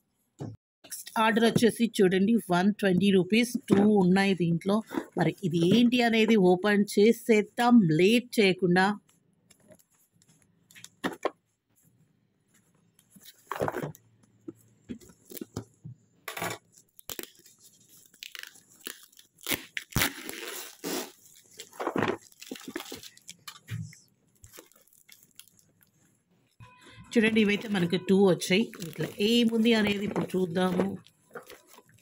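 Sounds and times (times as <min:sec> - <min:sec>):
packing tape ripping off box: 0:17.0 - 0:23.6.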